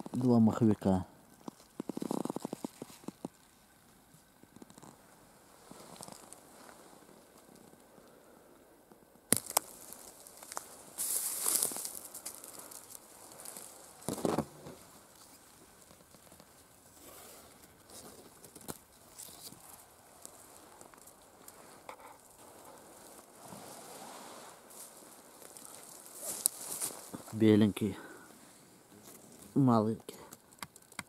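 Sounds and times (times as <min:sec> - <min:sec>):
rustling through dry leaves: 0:09.3 - 0:27.6
small clicks: 0:30.3 - 0:31.0.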